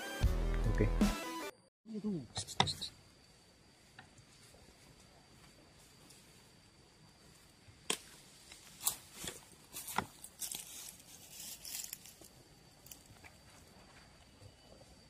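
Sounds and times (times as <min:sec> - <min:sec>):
leaves rustling and crackling: 0:04.2 - 0:13.2.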